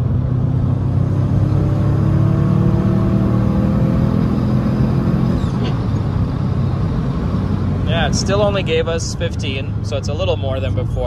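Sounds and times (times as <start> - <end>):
car engine revving under load: 0.0 - 11.0.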